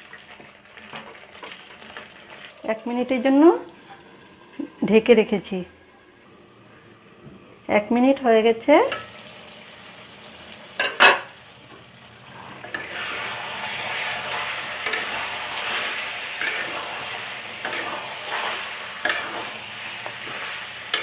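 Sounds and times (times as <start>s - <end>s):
curry sizzling in a pan: 0.0s - 21.0s
metal pot lid clanking: 8.9s - 9.2s, 10.8s - 11.3s, 14.8s - 15.3s, 16.4s - 16.8s, 17.6s - 18.0s, 19.0s - 19.4s
spatula scraping a pan: 12.3s - 21.0s.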